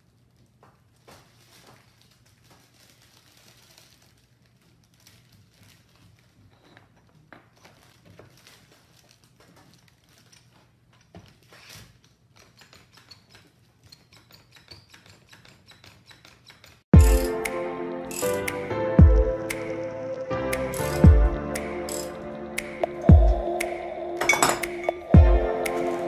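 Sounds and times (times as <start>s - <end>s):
plastic crinkling: 0.0s - 12.4s.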